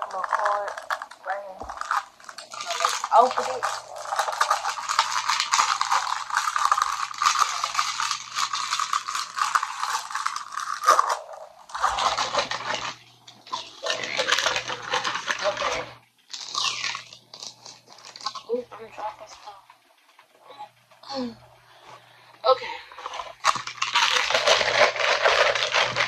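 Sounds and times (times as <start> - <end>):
packaging crinkling and rustling: 0.0 - 18.6, 22.9 - 26.0
faint low hum: 0.0 - 26.0.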